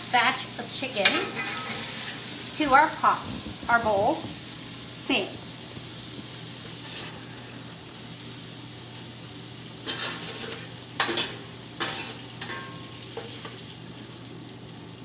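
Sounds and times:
chicken sizzling in a skillet: 0.0 - 15.0
spatula scraping a pan: 1.0 - 2.3, 6.7 - 7.6, 9.8 - 13.6.

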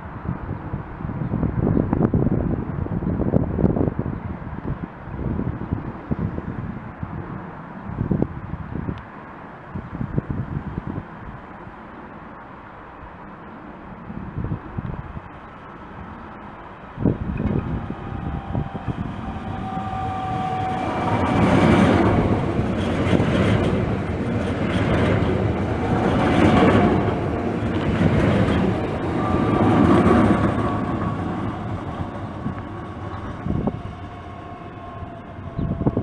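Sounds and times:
train wheels rumbling on rails: 14.1 - 36.0
train whining tones: 16.2 - 36.0.

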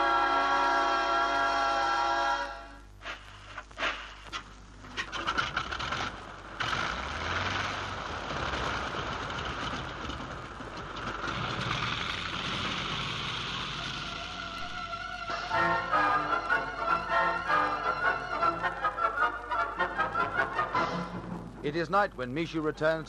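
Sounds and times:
rushing rumbling noise: 3.0 - 17.1, 18.3 - 22.2.

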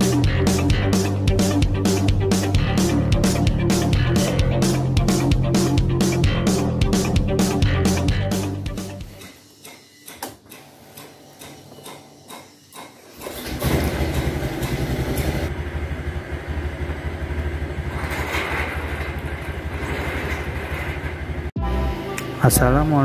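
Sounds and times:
metal gate scraping: 13.0 - 15.5, 17.8 - 21.5
scooter engine starting and idling: 13.1 - 23.0.

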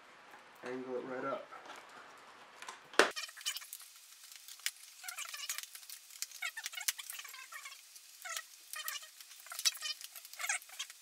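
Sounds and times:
high squeaky chirps: 3.1 - 3.7, 5.0 - 5.6, 6.3 - 11.0.

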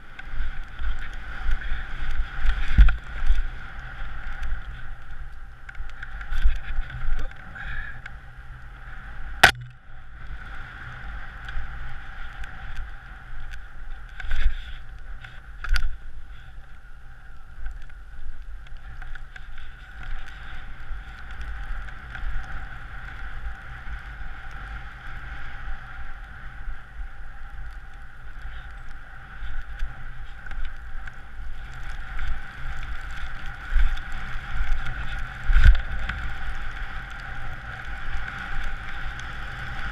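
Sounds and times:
wind buffeting a microphone: 0.0 - 8.3
skis sliding over snow: 0.0 - 9.4, 10.1 - 39.9
sharp click: 9.4 - 9.8.

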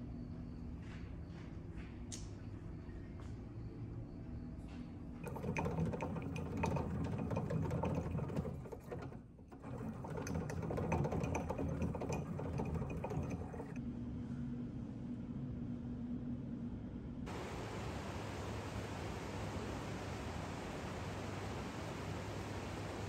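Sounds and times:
hand-cranked generator whirring clatter: 5.2 - 13.8.

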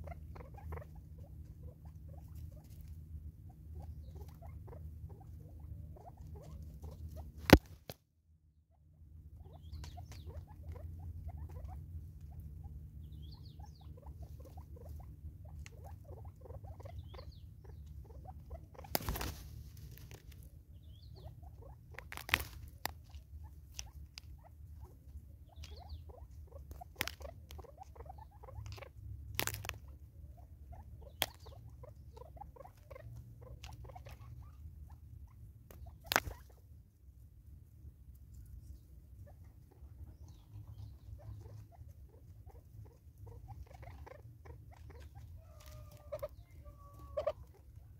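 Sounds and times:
low steady rumble: 0.0 - 47.9
birds' beaks tapping: 9.6 - 11.0, 18.7 - 21.3, 21.9 - 24.4, 25.5 - 29.9, 31.0 - 34.4, 35.7 - 36.5.

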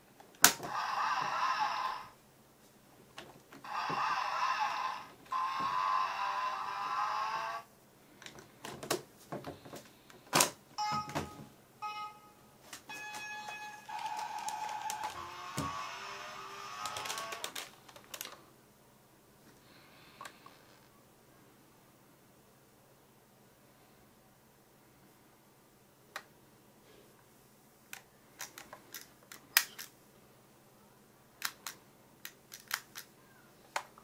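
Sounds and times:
sharp plastic clicks: 31.4 - 33.1.

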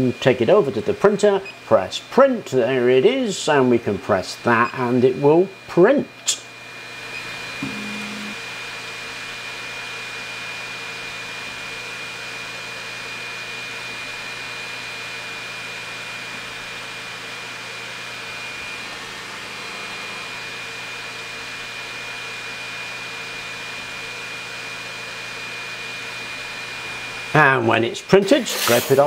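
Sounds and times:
printer fans whirring: 6.7 - 8.4
high whine: 7.2 - 8.4.

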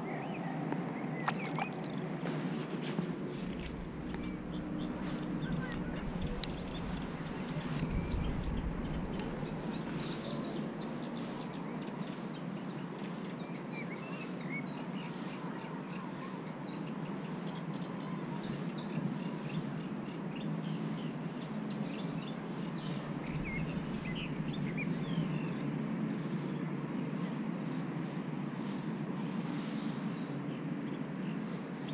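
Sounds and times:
small birds chirping and trilling: 0.0 - 2.5, 3.1 - 28.9, 29.5 - 31.9
outdoor background hiss: 0.0 - 31.9
wind rumble on microphone: 0.2 - 12.6, 20.6 - 31.9.

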